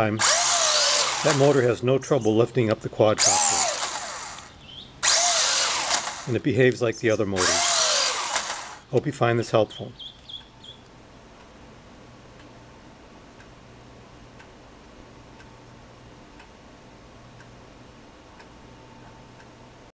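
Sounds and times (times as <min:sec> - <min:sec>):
low steady hum: 0:00.0 - 0:19.9
faint ticking: 0:10.0 - 0:19.9.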